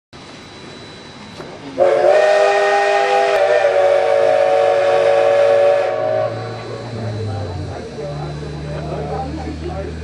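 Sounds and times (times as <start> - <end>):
steam locomotive chime whistle: 0.5 - 8.7.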